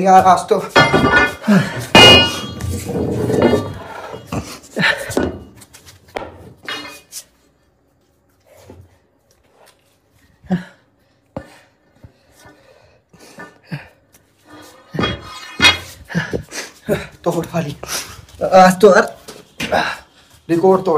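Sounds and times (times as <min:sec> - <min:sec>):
iron rod knocking and scraping: 0:00.0 - 0:04.3, 0:14.5 - 0:16.0
sharp metal knocks: 0:00.2 - 0:03.8.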